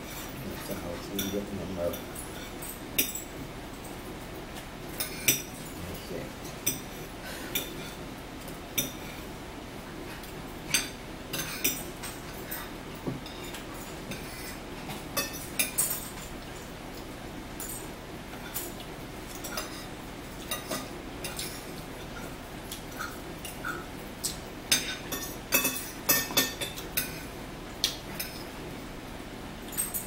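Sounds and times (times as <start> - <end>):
forks clinking on plates: 0.3 - 3.4, 10.7 - 16.4, 17.6 - 21.8, 22.7 - 28.5, 29.6 - 30.0.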